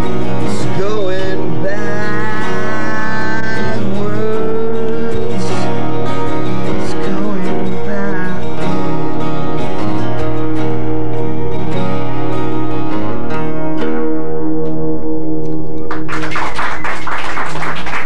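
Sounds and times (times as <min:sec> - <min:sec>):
acoustic guitars strummed: 0:00.0 - 0:17.8
person singing long wavering notes: 0:00.3 - 0:09.0.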